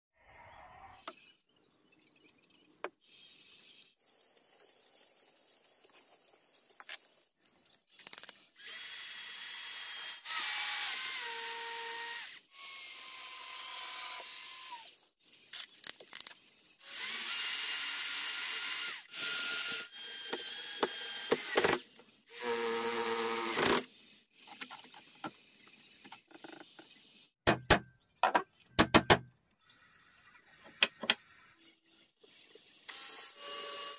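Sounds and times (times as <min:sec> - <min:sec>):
electric drill boring into wood: 0:08.6 - 0:15.0, 0:16.8 - 0:23.9, 0:32.8 - 0:33.9
hammer strikes: 0:27.4 - 0:29.3.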